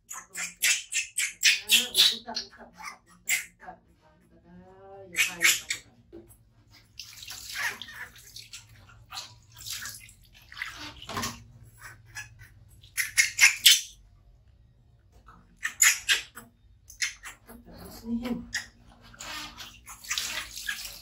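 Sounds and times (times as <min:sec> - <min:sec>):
water splashing: 0:06.7 - 0:13.6, 0:18.6 - 0:21.0.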